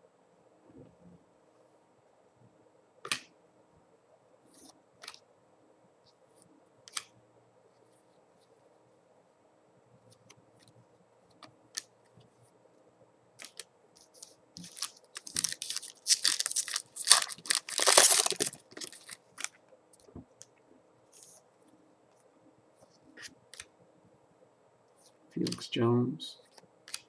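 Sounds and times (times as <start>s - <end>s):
foil wrapper crinkling: 14.6s - 19.6s.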